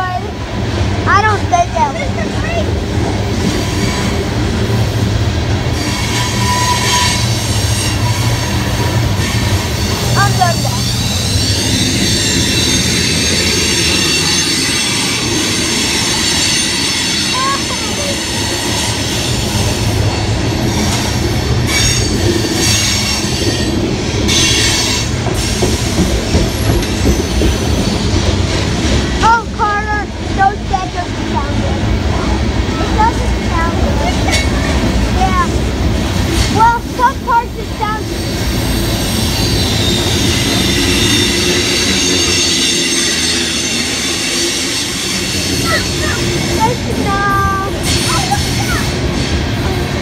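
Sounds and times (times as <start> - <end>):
train wheels rumbling on rail: 0.0 - 50.0
high wheel squeal: 3.4 - 4.4, 5.7 - 28.2, 38.0 - 49.9.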